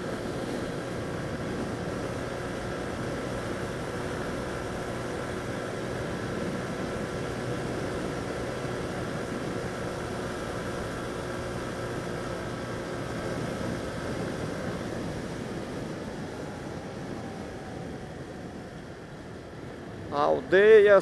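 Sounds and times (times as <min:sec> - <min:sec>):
motorcycle engine cruising: 0:00.0 - 0:19.5
wind rush over microphone: 0:00.0 - 0:21.0.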